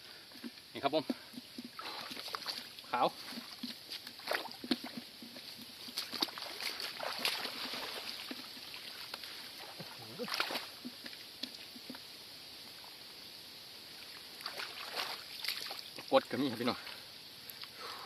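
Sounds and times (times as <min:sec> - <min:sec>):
muddy water sloshing and splashing: 0:00.9 - 0:12.0, 0:14.1 - 0:17.1.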